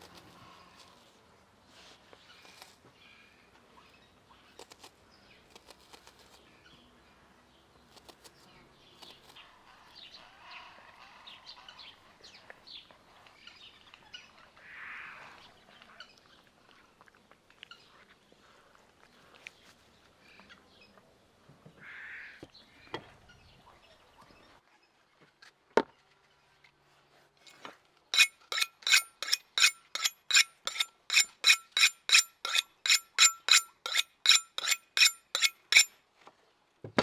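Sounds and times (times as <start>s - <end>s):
knife scraping on cleaver blade: 27.5s - 35.9s.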